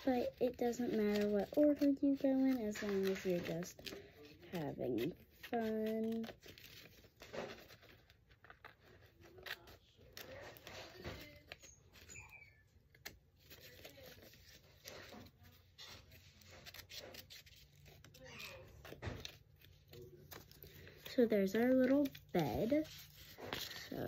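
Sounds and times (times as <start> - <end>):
paper rustling: 0.0 - 24.0
scissors snipping paper: 0.0 - 24.0.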